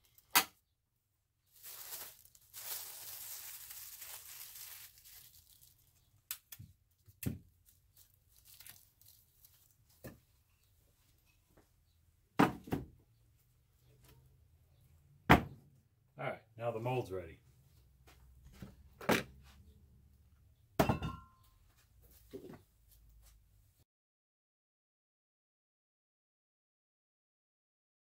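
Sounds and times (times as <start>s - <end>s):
plastic liner crinkling: 1.4s - 10.1s.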